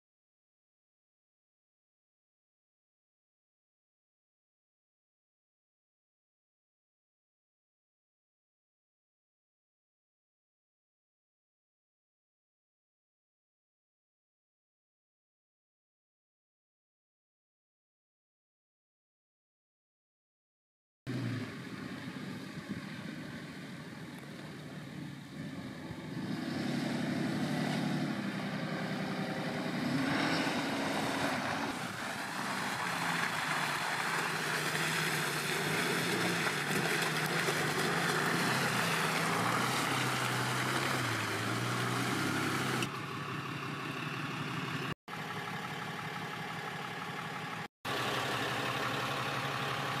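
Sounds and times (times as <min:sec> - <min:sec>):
diesel engine revving: 0:21.1 - 0:50.0
tyres rushing in mud: 0:21.1 - 0:50.0.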